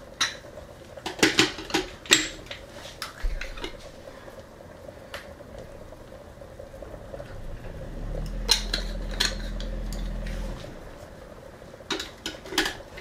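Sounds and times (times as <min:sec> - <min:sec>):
fan hum: 0:00.0 - 0:13.0
sauce simmering in frying pan: 0:00.0 - 0:13.0
low hum: 0:03.9 - 0:12.1.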